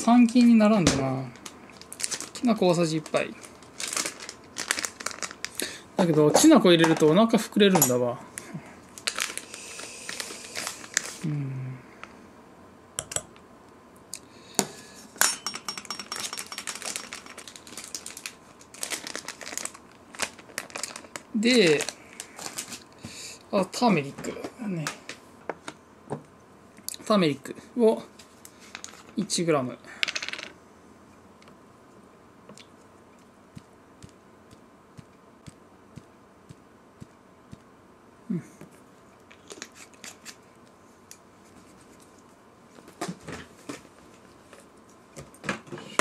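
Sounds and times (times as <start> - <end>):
plastic bag crinkling: 1.3 - 6.4, 8.9 - 11.2, 16.2 - 22.9.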